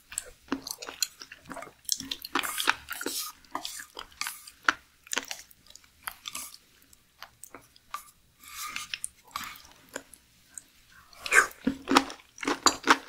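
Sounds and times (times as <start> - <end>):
chewing with wet mouth clicks: 0.1 - 8.1.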